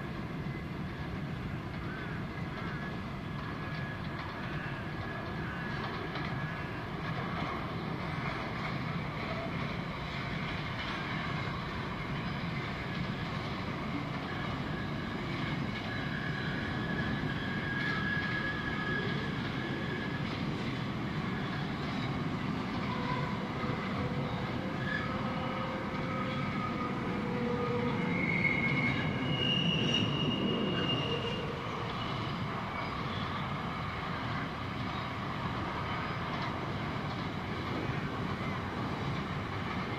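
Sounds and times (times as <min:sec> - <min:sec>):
train wheels rolling on rails: 0:00.0 - 0:39.9
high-pitched wheel squeals: 0:14.2 - 0:20.6, 0:21.2 - 0:33.6.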